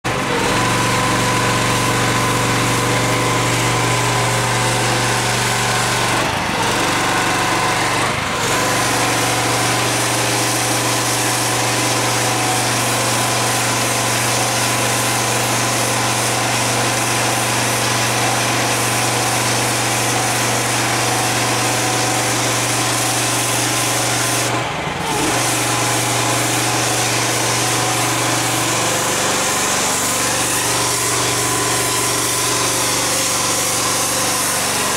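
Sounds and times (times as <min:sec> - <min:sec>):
pressure washer motor hum: 0:00.0 - 0:34.9
water jet hissing on paving: 0:08.6 - 0:34.9.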